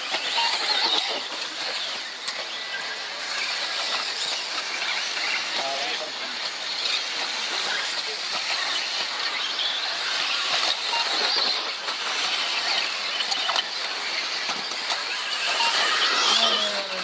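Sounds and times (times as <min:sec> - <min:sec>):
model car motors whining: 0:00.0 - 0:17.0.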